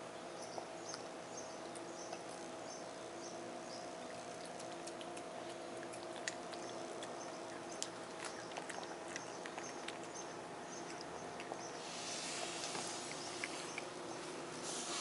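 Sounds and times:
faint steady hum: 0.0 - 15.0
cat chewing food: 4.0 - 15.0.

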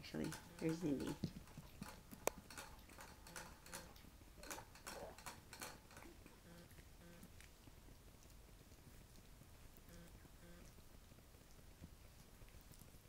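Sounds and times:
puppy claws clicking on tile: 0.0 - 10.0.

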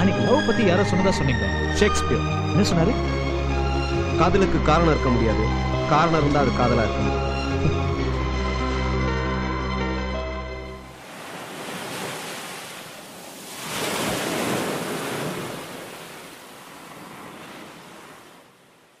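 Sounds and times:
music: 0.0 - 10.9
sea waves and surf: 7.5 - 19.0.

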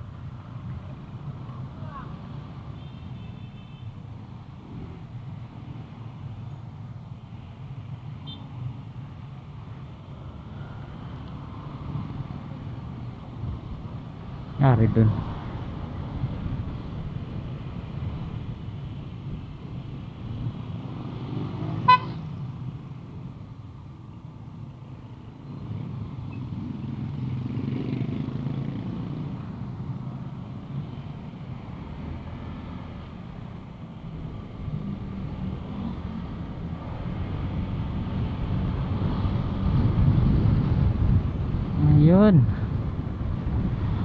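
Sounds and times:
scooter engine and road rumble: 0.0 - 44.0
vehicle horn toot: 21.8 - 22.2.

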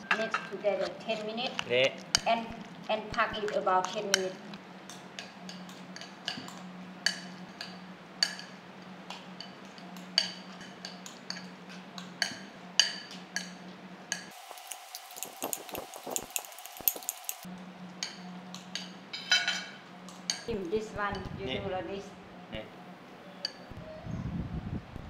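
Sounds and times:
low background hum: 0.0 - 25.0
spoons clinking against bowl: 9.4 - 20.5.

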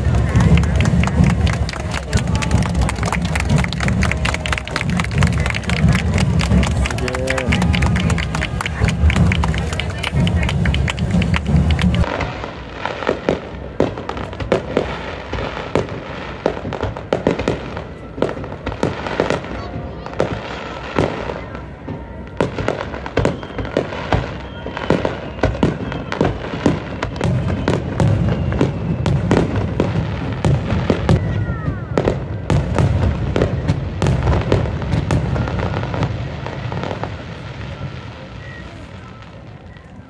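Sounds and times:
fireworks bangs and crackles: 0.0 - 40.0.

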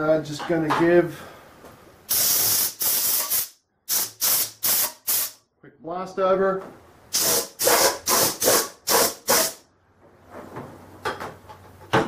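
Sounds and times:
air blow gun hissing blasts: 2.1 - 5.4, 7.1 - 9.6.

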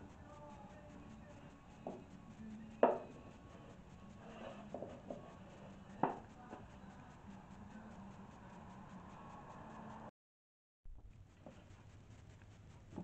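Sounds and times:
wooden tray knocking on board: 2.8 - 3.1, 4.8 - 5.2.

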